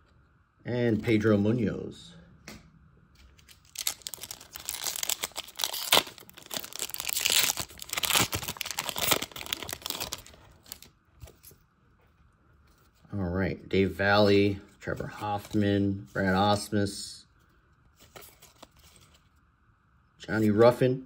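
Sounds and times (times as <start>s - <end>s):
wrapper tearing and crinkling: 3.4s - 10.9s.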